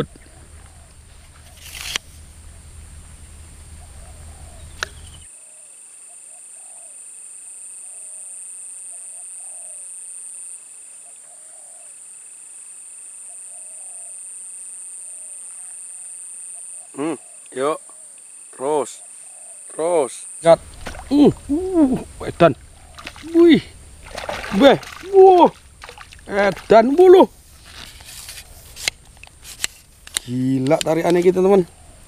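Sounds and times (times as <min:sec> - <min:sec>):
low hum: 0:00.0 - 0:05.3, 0:20.5 - 0:28.1
insects droning: 0:00.0 - 0:32.0
short chirping calls: 0:03.8 - 0:05.3.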